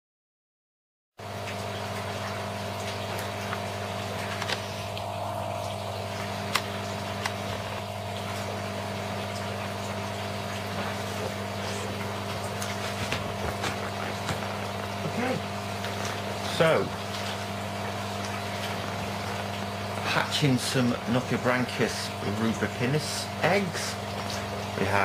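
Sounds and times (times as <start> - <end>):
low electrical hum: 1.2 - 25.0
faint high whine: 3.8 - 12.6.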